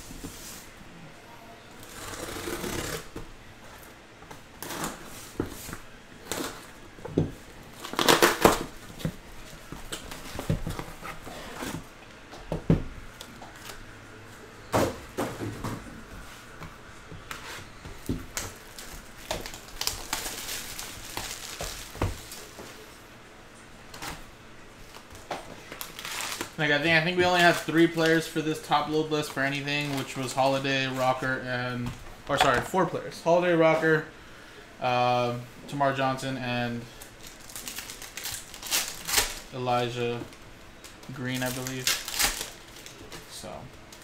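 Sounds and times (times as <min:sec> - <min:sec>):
box cutter slitting packing tape: 0:01.8 - 0:03.1, 0:07.8 - 0:08.7
plastic shrink wrap crinkling: 0:07.7 - 0:11.0, 0:18.3 - 0:22.6, 0:24.8 - 0:31.2, 0:37.0 - 0:39.6, 0:40.3 - 0:44.0.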